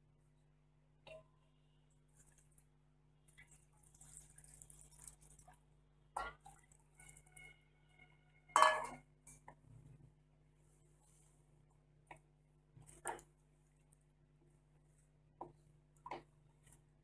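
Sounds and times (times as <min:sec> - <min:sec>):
water pouring and splashing: 0:02.1 - 0:07.5.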